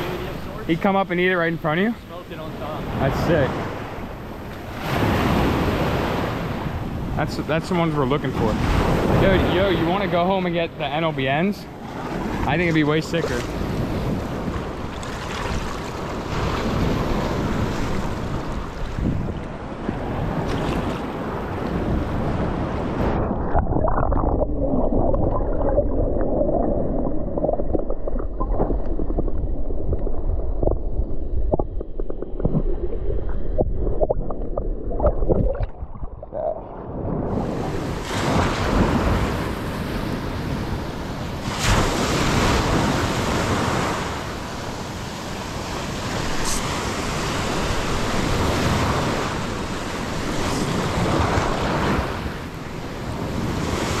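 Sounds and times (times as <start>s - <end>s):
breaking surf: 4.6s - 19.0s, 36.6s - 54.0s
muffled underwater water sloshing: 13.4s - 39.0s
wind buffeting microphone: 13.5s - 54.0s.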